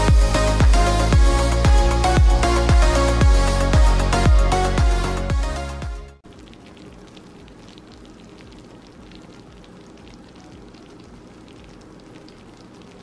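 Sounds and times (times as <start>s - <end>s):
background music: 0.0s - 6.2s
pie filling bubbling and crackling: 6.2s - 13.0s.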